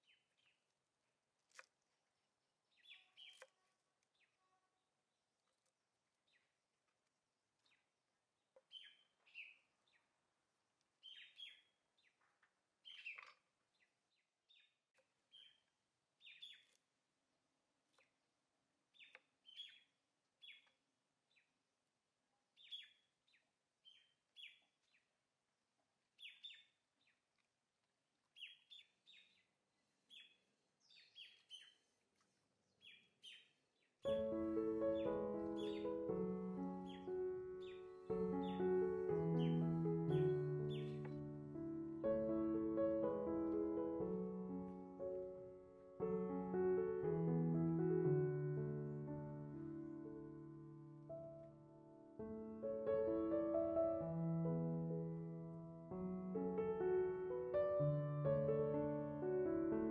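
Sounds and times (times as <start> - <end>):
faint bird chirps: 2.7 - 4.9, 8.6 - 10.2, 11.0 - 12.2, 12.8 - 16.8, 18.9 - 21.5, 22.6 - 25.1, 26.2 - 27.2, 28.3 - 32.0, 32.7 - 41.4.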